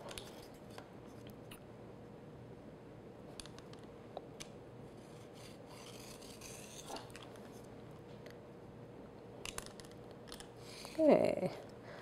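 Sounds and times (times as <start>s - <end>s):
pizza cutter rasping through pastry: 5.0s - 7.1s.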